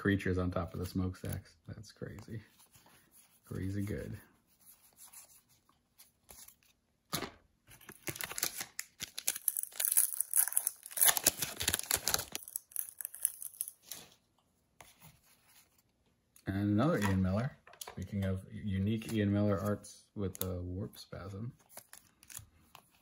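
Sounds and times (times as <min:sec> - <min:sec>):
foil wrapper tearing: 0:07.9 - 0:13.8.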